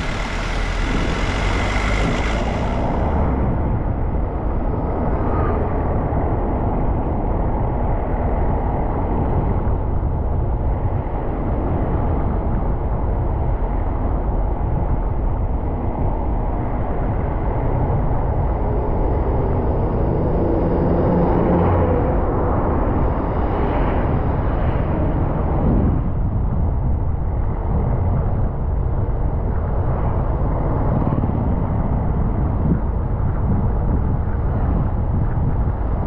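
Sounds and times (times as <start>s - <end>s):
road vehicle rumble: 0.0s - 12.7s.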